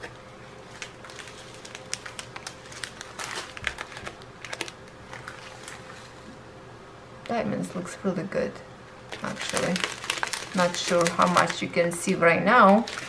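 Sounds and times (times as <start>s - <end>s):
plastic bags crinkling: 0.0s - 6.3s, 9.1s - 13.0s
beads clicking inside bags: 9.1s - 11.6s.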